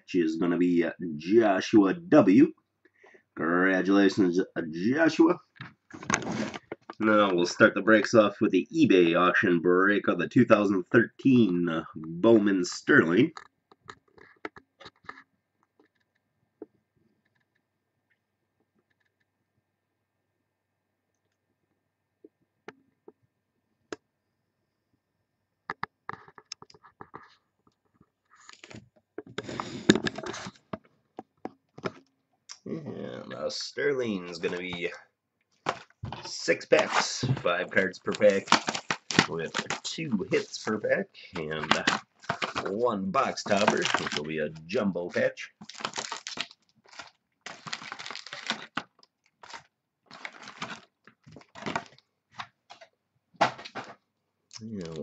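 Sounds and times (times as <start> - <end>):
cardboard packaging crinkling and rustling: 5.9 - 7.2, 29.4 - 30.7, 35.6 - 54.0.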